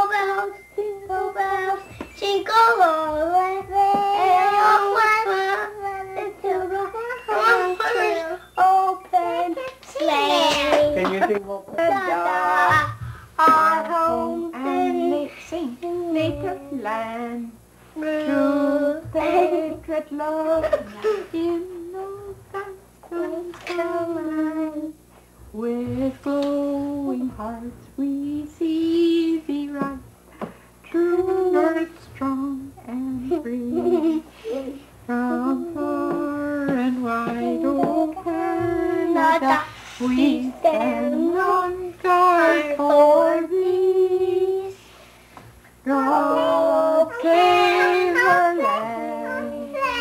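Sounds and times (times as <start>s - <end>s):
children singing: 0.0s - 11.2s, 45.9s - 50.0s
woman singing: 0.0s - 30.1s, 30.8s - 44.8s, 45.8s - 50.0s.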